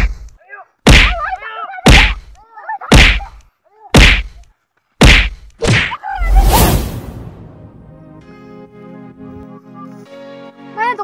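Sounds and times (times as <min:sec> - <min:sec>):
punch sound effects: 0:05.0 - 0:07.9.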